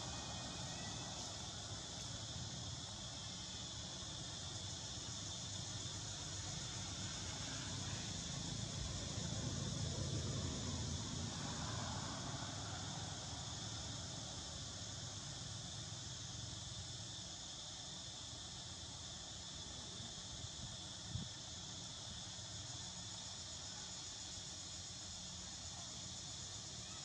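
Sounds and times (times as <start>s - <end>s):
insects calling: 0.0s - 27.0s.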